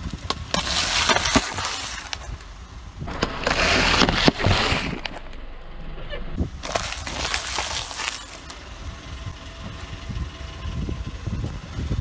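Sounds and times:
car tyre crushing cardboard tubes: 0.0s - 5.5s, 6.4s - 8.9s.

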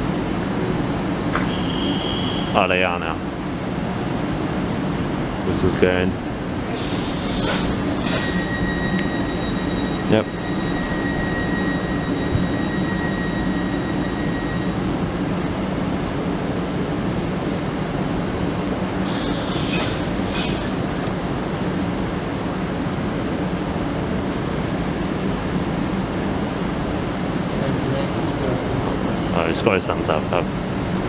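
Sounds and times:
electric train humming: 0.0s - 31.0s
thin high tone: 6.7s - 15.4s
brief hiss: 6.8s - 8.5s, 19.1s - 20.8s.

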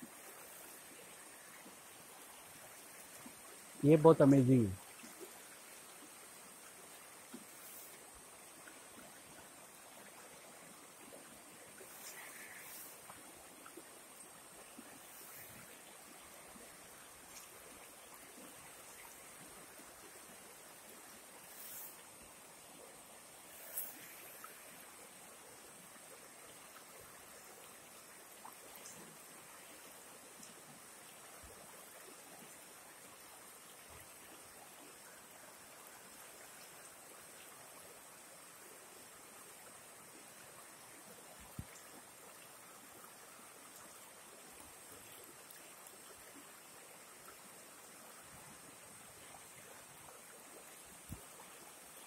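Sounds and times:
river rushing: 0.0s - 25.8s.

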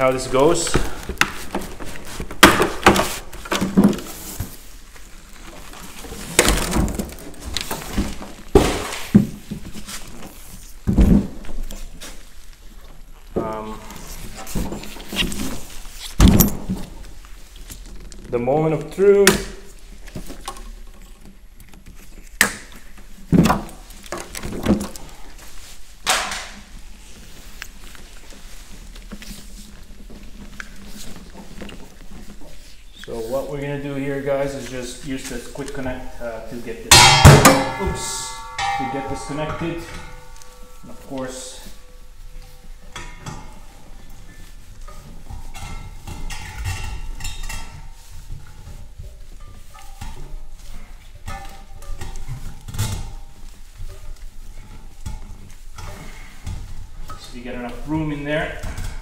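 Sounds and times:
hose knocking and clattering: 36.9s - 41.7s.

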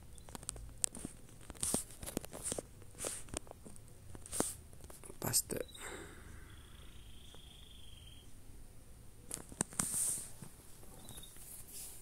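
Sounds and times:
rustling near microphone: 0.2s - 5.2s, 9.2s - 12.0s.

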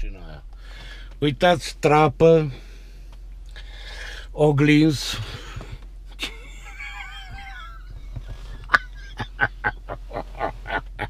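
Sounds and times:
man laughing: 6.1s - 11.0s.

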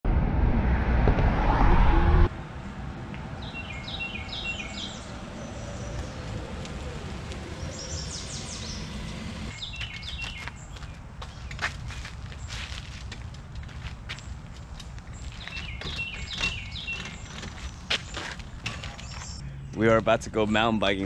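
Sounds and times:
car road and engine rumble: 0.0s - 11.4s
songbird chirping: 3.2s - 12.8s, 15.1s - 21.0s.

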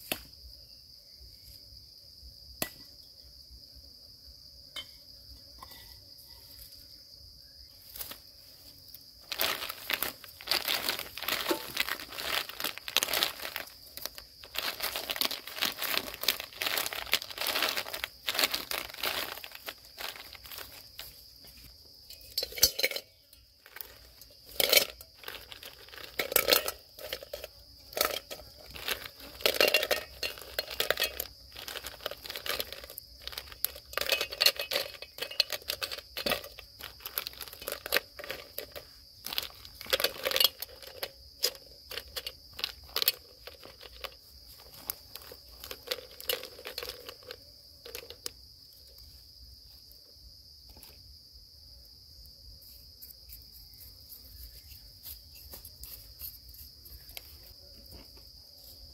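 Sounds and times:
crinkling handling noises: 7.7s - 49.8s.

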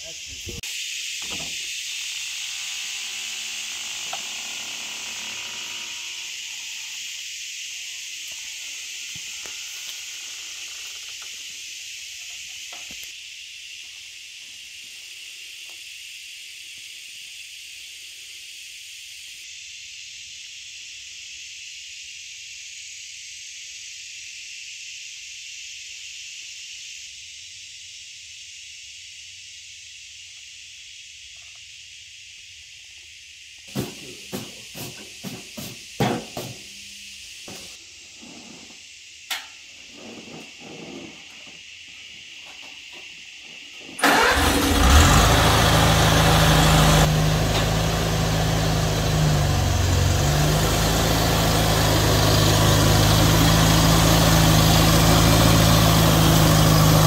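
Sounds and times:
insects chorus: 0.0s - 57.0s.

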